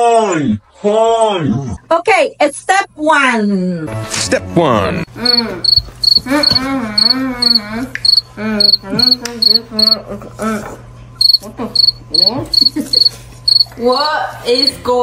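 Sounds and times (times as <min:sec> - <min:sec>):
person humming wordlessly: 0:05.1 - 0:10.8
cricket chirping: 0:05.2 - 0:10.0, 0:11.2 - 0:14.7.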